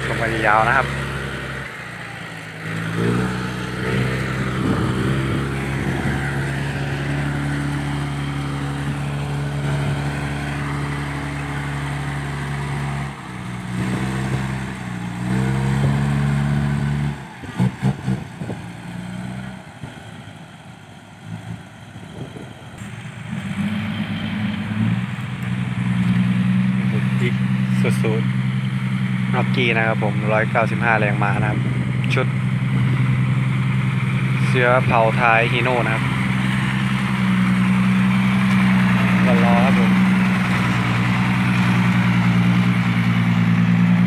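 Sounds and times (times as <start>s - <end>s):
dump truck diesel engine under load: 0.0s - 44.0s.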